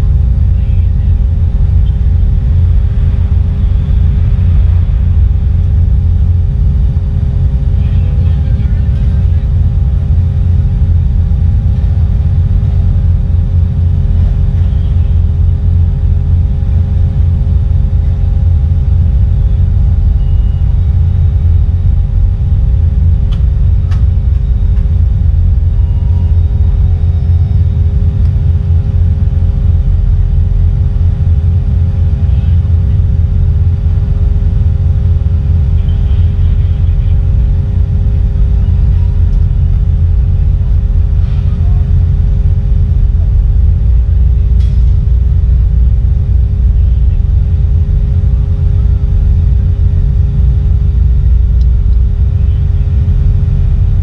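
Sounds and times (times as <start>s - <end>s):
ferry diesel engines rumbling: 0.0s - 54.0s.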